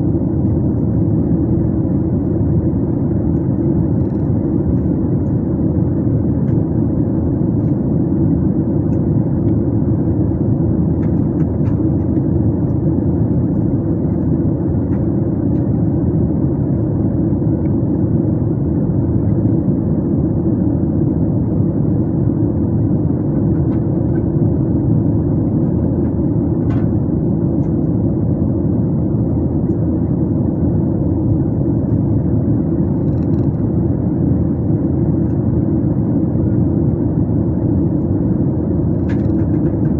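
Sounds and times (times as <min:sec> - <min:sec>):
jet airliner cabin drone: 0:00.0 - 0:39.9.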